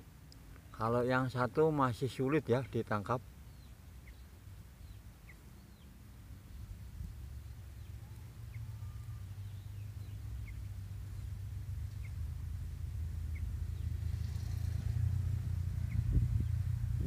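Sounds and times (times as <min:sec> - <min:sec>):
low steady rumble: 0:00.0 - 0:17.0
faint bird chirps: 0:02.5 - 0:12.3, 0:13.2 - 0:14.0, 0:15.7 - 0:16.7.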